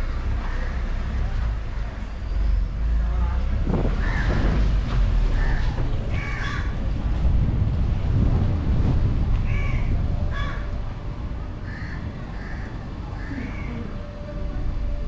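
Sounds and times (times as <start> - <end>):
car rolling rumble: 0.0 - 15.0
wind buffeting microphone: 3.4 - 15.0
bird calling: 11.7 - 14.1.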